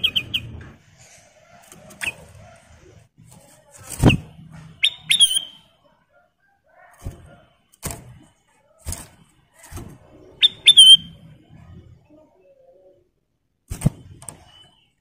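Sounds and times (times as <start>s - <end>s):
bird whistled chirps: 0.0s - 0.5s, 4.8s - 5.6s, 10.4s - 11.2s.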